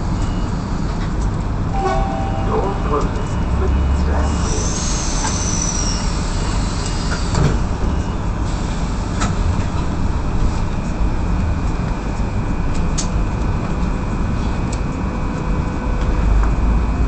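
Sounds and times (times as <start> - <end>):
train cabin rumble and hum: 0.0 - 17.0.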